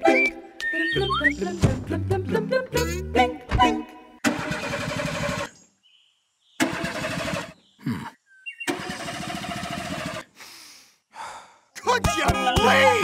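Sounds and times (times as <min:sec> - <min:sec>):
vehicle engine bursts: 0:08.7 - 0:10.2.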